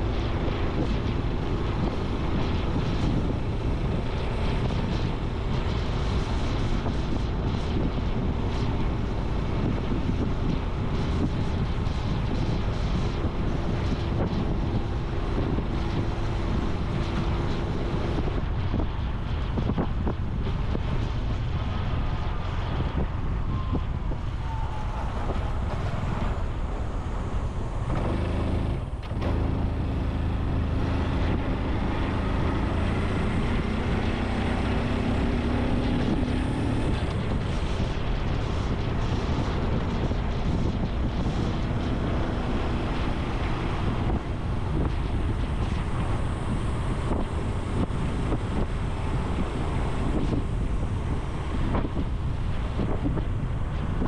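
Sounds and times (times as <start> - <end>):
wind noise on microphone: 0.0 - 54.0
motorcycle engine running: 27.9 - 37.8.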